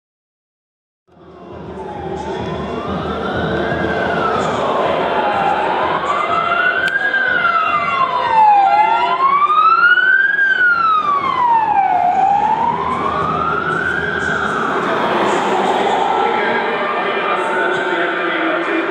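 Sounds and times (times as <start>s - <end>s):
ambulance siren wailing: 1.2s - 18.9s.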